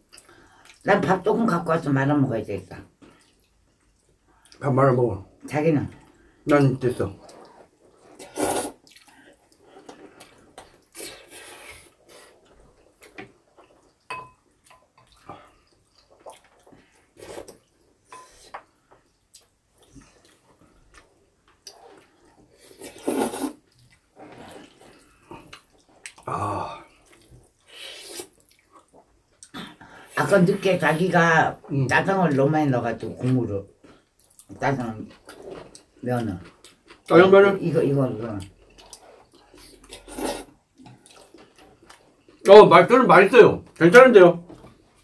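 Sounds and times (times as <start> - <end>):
chewing and smacking: 3.0 - 4.6, 8.8 - 11.1, 12.2 - 22.8, 23.6 - 26.3, 26.9 - 29.6, 33.8 - 37.3, 38.2 - 40.1, 40.7 - 42.5
noodles being slurped: 7.1 - 14.0, 19.8 - 29.1, 38.5 - 42.4.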